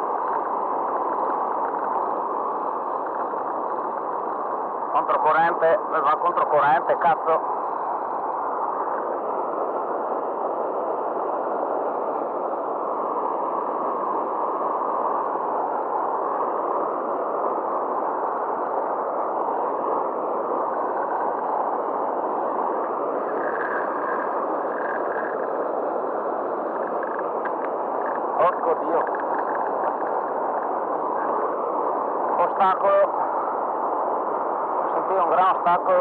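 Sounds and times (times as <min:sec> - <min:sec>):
river water rushing through weir: 0:13.2 - 0:35.9.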